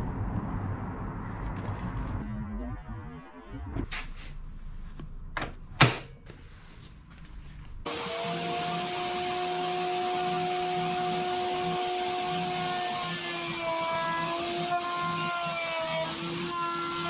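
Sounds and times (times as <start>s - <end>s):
power tool motor whining: 7.9s - 17.0s.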